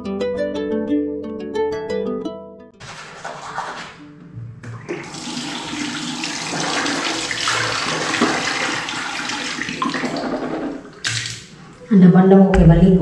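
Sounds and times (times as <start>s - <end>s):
churning water in jacuzzi: 4.8s - 11.6s.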